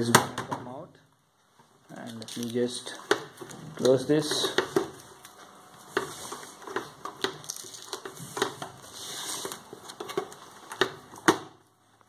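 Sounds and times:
soft plastic rustle: 0:01.4 - 0:10.7.

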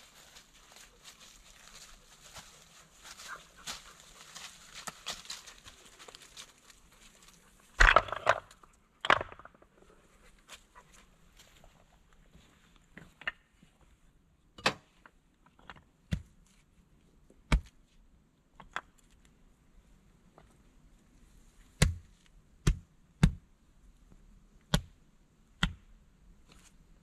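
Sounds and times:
flat stones clacking: 0:03.7 - 0:09.8.

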